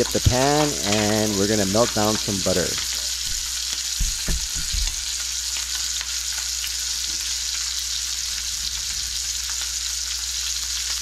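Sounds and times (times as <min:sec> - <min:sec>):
butter sizzling in a pan: 0:00.0 - 0:11.0
soft low knocks: 0:03.3 - 0:05.0.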